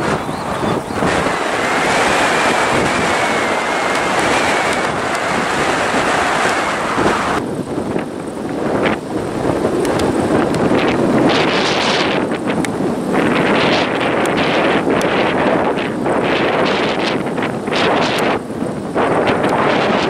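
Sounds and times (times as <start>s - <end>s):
faint high whine: 0.0s - 7.4s
jet engines running: 0.0s - 20.0s
strong wind on microphone: 0.0s - 20.0s.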